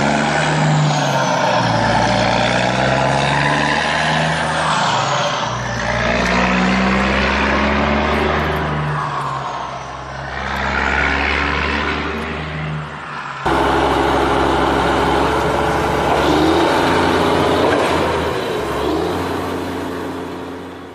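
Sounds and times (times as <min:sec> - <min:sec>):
vehicle engine running: 0:13.4 - 0:20.9.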